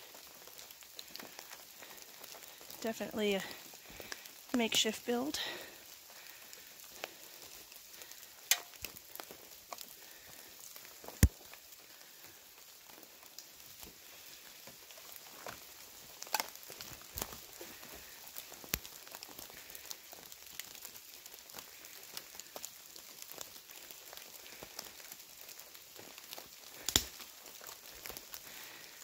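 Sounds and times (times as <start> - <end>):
sticks snapping: 8.5 - 8.9, 16.2 - 16.6, 26.8 - 27.2
footsteps on forest litter: 13.9 - 22.5.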